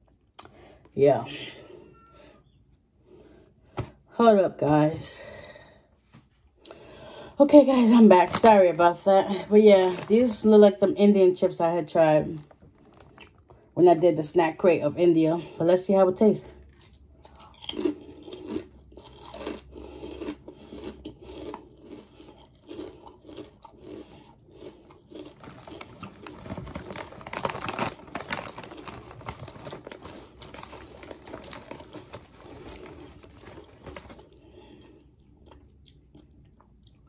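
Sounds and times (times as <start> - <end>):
crunchy chewing of chips: 12.4 - 13.7, 16.6 - 37.0.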